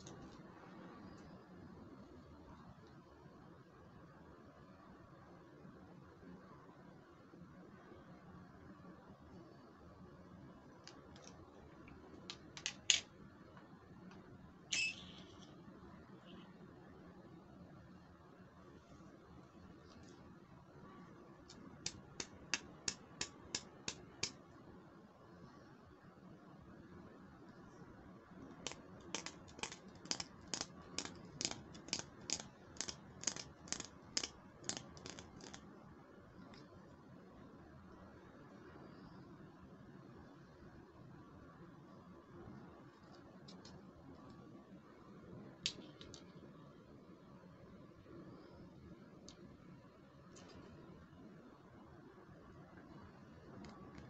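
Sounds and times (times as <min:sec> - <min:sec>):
plastic toy mirror clicking: 0:12.2 - 0:13.1, 0:28.6 - 0:35.6.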